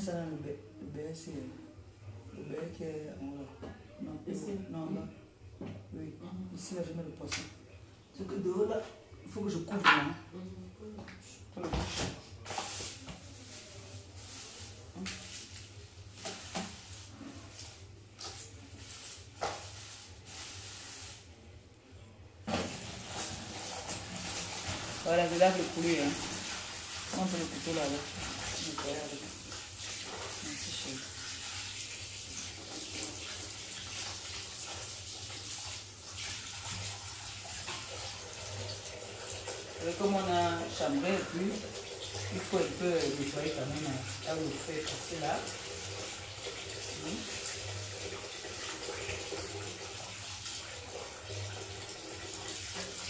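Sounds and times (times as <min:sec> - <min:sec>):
kitchen tap running: 0:22.5 - 0:53.0.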